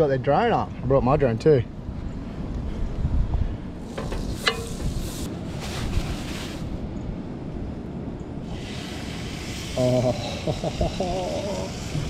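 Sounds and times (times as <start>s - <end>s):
wind buffeting microphone: 1.7s - 9.7s.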